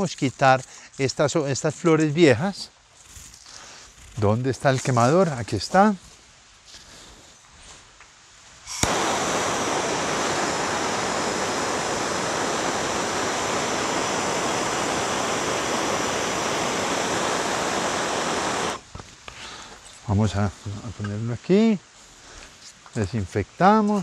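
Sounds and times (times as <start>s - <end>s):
gas torch hissing: 8.6s - 18.9s
gas torch ignition click: 8.7s - 18.8s.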